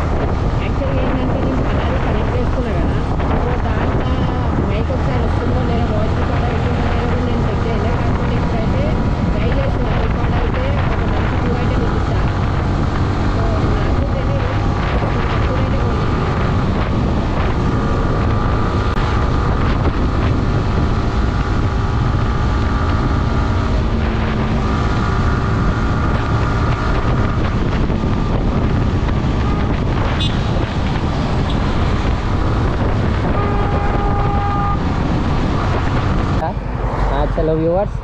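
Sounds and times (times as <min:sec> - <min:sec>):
motorcycle engine: 0:00.0 - 0:38.0
road noise: 0:00.0 - 0:38.0
wind buffeting microphone: 0:00.0 - 0:38.0.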